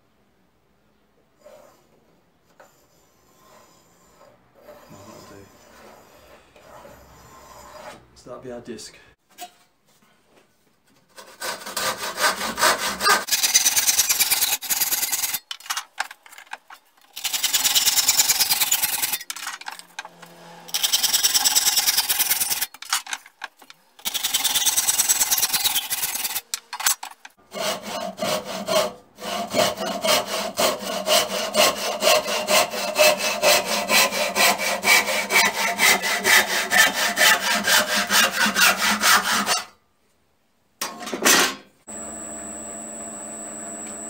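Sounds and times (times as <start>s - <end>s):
hand saw cutting wood: 3.3s - 8.1s, 11.1s - 15.5s, 17.1s - 23.1s, 24.0s - 39.8s.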